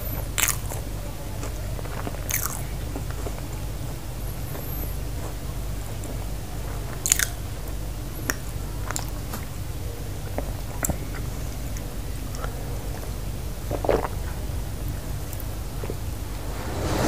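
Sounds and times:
low hum: 15.4 - 17.0.

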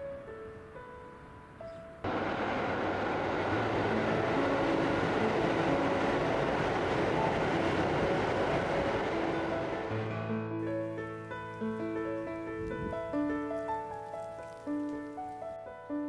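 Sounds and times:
soft piano music: 0.0 - 16.0
loud steady rushing noise: 2.1 - 10.3.

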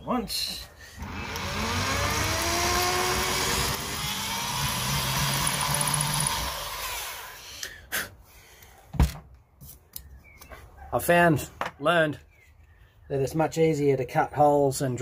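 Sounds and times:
electric drill boring wood: 1.0 - 7.4.

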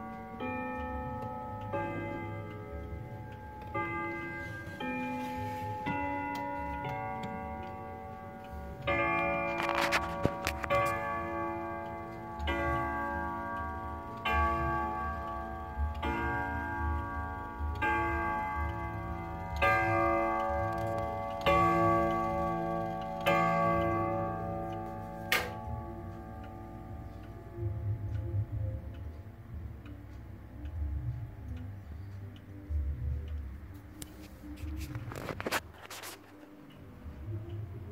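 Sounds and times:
wall clock striking: 0.0 - 29.8
clock ticking: 0.0 - 37.9.

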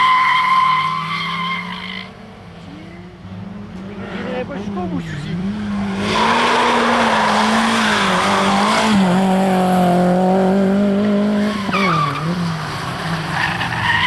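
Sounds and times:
tyres squealing and skidding: 0.0 - 2.1, 5.0 - 9.2, 11.4 - 14.0
car engine at high revs: 1.6 - 14.0.

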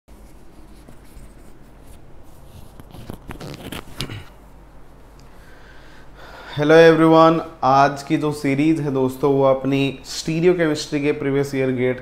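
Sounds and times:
low steady hum: 0.1 - 12.0
microphone rubbing and clicks: 0.8 - 4.4.

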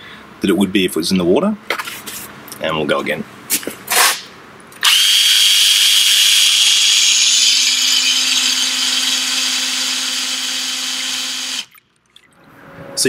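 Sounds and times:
cordless drill whining: 4.8 - 11.7
water pumping: 5.6 - 12.4.

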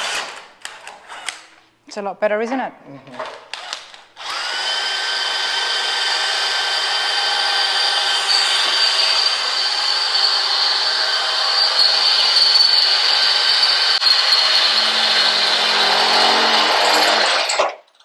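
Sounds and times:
drill boring into steel: 4.2 - 17.7
high squeal: 11.3 - 17.8.

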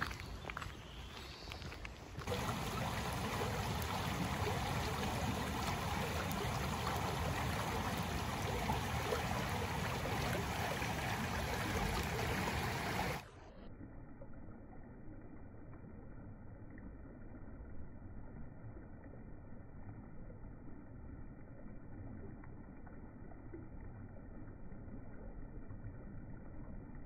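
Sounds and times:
stream rushing over stones: 2.2 - 13.3.

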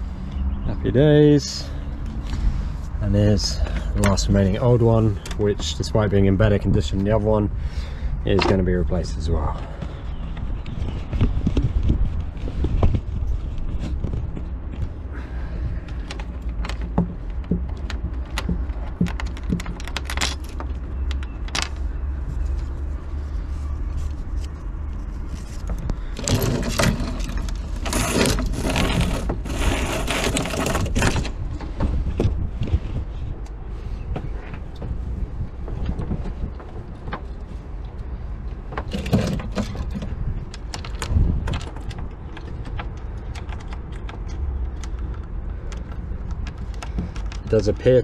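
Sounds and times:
shackles and blocks clinking: 16.0 - 22.2
rope scraping through fittings: 21.8 - 31.4.

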